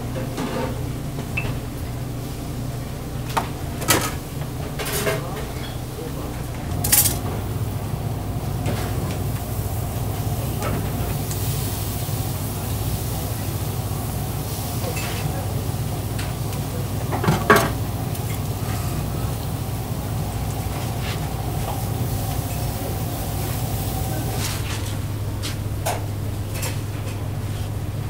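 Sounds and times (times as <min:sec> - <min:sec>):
steady low hum: 0:00.0 - 0:28.0
buns toasting on griddle hiss: 0:06.8 - 0:25.6
kitchen knocks and clatters: 0:17.1 - 0:17.8.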